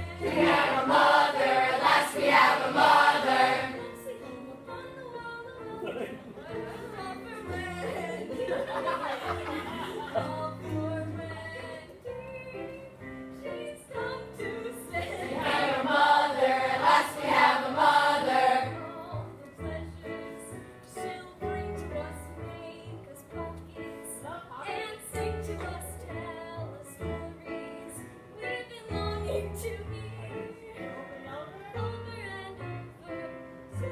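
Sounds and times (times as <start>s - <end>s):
choir of voices singing together: 0.0s - 4.6s, 14.4s - 19.0s.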